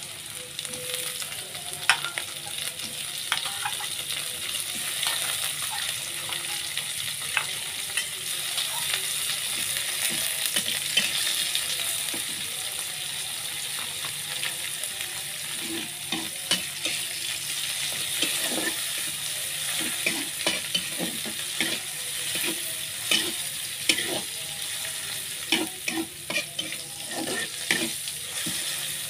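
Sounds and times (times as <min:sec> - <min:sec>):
fish sizzling in hot oil: 0:00.0 - 0:29.0
spatula scraping pan: 0:18.0 - 0:19.1, 0:19.8 - 0:24.3, 0:25.4 - 0:28.9.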